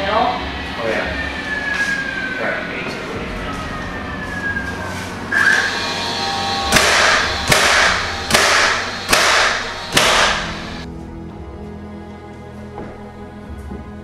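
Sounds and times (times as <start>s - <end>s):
nail gun shots with hiss: 6.7s - 10.8s.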